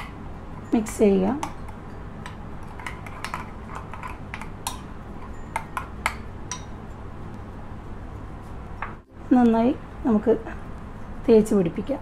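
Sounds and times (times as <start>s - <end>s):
spoon clinking against glass bowl: 0.0s - 7.0s.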